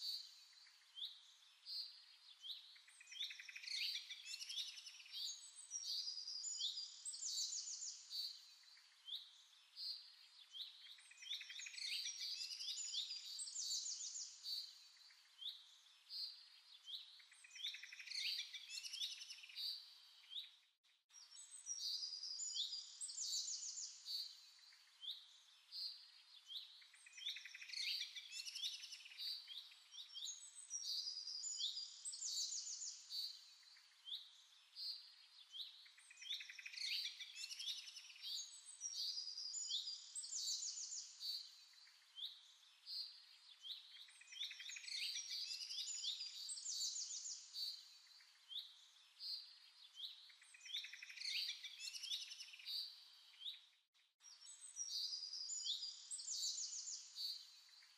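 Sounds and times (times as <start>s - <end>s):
birds singing and chirping: 2.3s - 15.8s, 16.8s - 20.6s, 21.3s - 57.9s.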